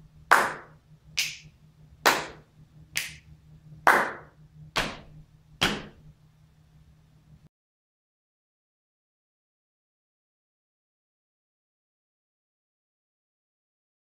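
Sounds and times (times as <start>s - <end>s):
hand claps and strokes: 0.3s - 6.0s.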